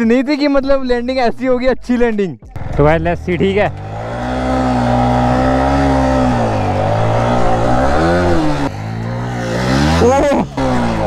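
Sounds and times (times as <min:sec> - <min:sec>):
motorcycle engine running: 0:02.4 - 0:11.0.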